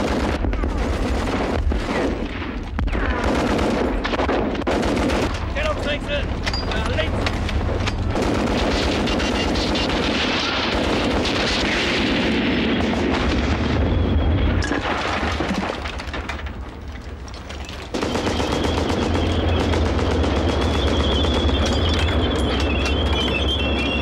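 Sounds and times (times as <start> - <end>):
rifle shots: 0.0 - 5.8, 8.0 - 13.6, 17.9 - 21.5
machine gun firing bursts: 0.0 - 6.0, 7.6 - 13.3, 17.9 - 23.1
explosions: 0.0 - 6.4, 7.6 - 16.8
tank engine and tracks rumbling: 0.0 - 24.0.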